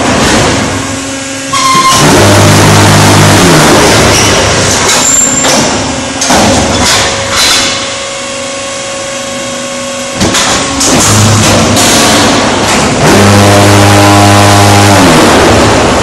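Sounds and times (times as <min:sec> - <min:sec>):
hydraulic unit humming: 0:00.0 - 0:16.0
loud deep drone: 0:00.0 - 0:16.0
metallic clanks and knocks: 0:04.1 - 0:07.9, 0:10.2 - 0:13.0.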